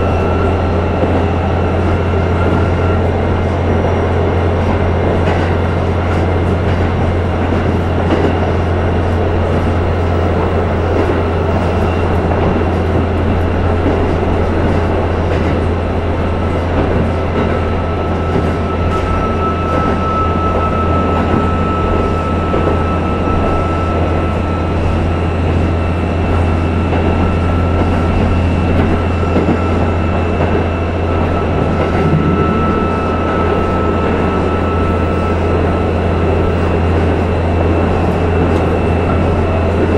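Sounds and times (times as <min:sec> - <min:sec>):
railcar engine drone: 0:00.0 - 0:39.9
wheels running on rails: 0:00.0 - 0:39.9.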